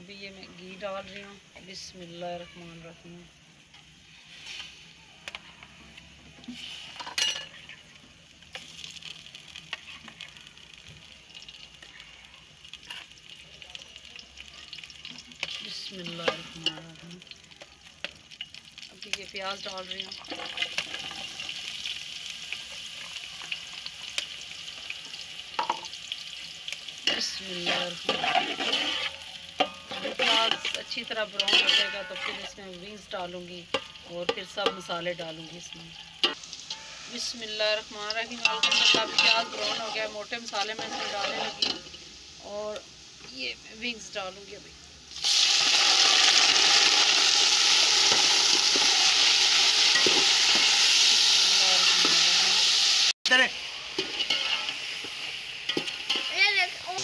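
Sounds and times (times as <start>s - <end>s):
onions sizzling in oil: 0.0s - 57.0s
spatula scraping pot: 27.1s - 32.7s, 38.1s - 41.9s, 54.0s - 54.8s
spatula tapping pot: 33.7s - 35.0s.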